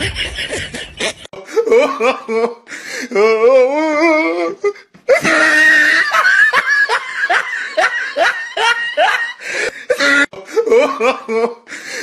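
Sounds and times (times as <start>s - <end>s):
person laughing loudly: 0.0s - 2.6s, 5.1s - 11.7s.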